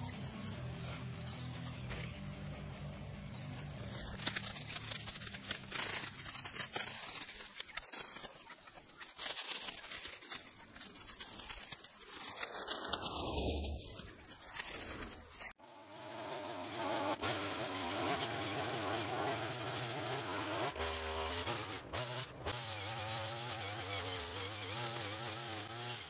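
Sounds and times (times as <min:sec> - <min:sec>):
grass rustling and tearing: 0:03.9 - 0:15.5.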